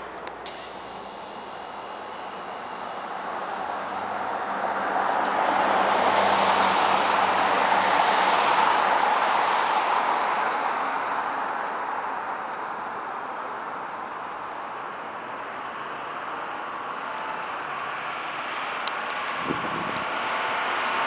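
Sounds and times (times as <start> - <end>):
vehicle driving past: 0.0 - 14.8.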